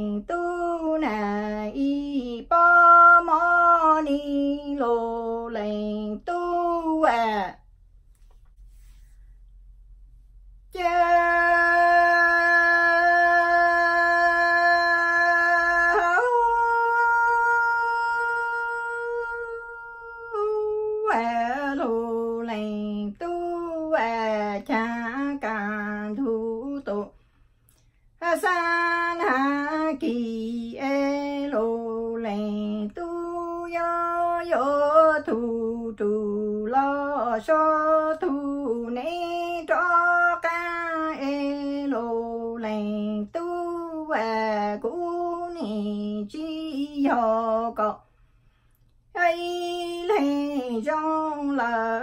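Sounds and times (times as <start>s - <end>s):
woman singing long held notes: 10.7s - 27.2s, 28.2s - 48.0s, 49.2s - 52.0s.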